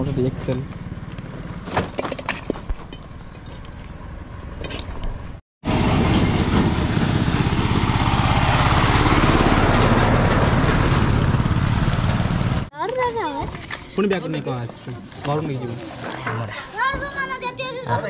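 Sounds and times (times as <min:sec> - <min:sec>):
diesel tiller engine running: 0:03.1 - 0:12.7.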